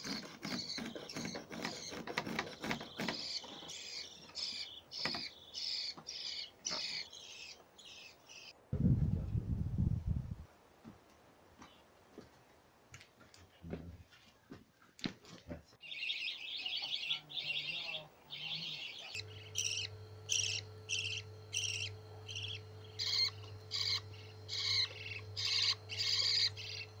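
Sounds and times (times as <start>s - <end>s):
budgerigars chirping: 0.0s - 8.5s, 15.8s - 27.0s
low steady hum: 4.0s - 10.5s, 16.2s - 27.0s.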